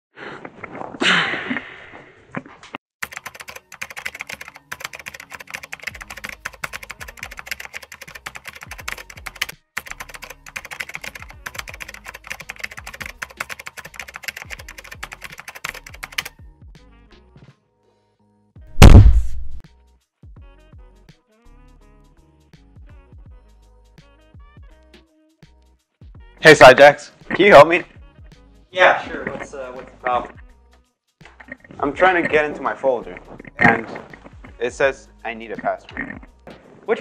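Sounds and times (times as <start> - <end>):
typing on computer keyboard: 3.0 - 16.3.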